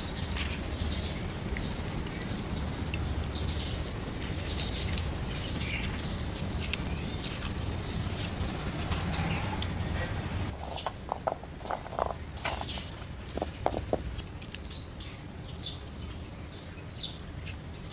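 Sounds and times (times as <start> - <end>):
small birds chirping: 0.0 - 17.9
garlic skin crackling: 5.7 - 9.8, 14.0 - 15.6.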